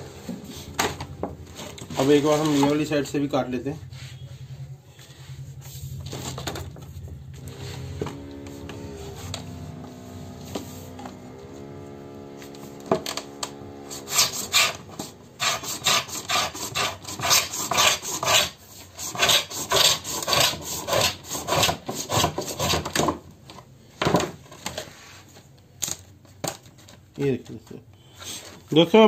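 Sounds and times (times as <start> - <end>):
marking gauge scraping laminate: 7.3 - 22.9.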